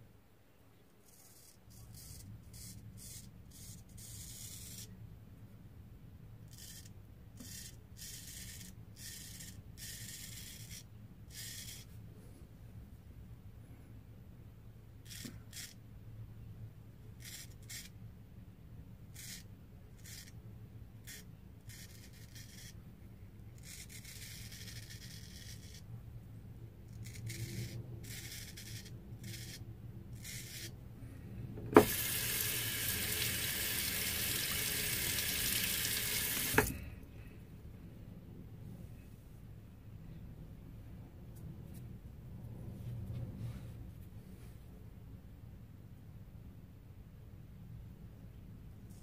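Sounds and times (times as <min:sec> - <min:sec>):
razor scraping stubble: 0:27.0 - 0:29.6, 0:31.8 - 0:35.7
tap running: 0:31.6 - 0:36.8.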